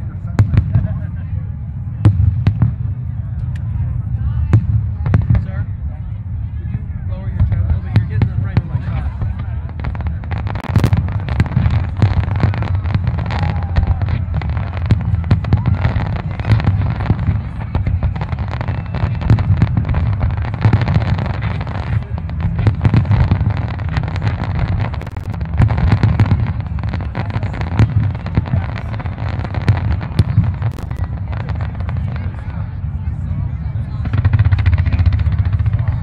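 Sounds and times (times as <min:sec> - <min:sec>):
fireworks booms rumble: 0:00.0 - 0:36.0
fireworks bursting with crackling: 0:07.4 - 0:36.0.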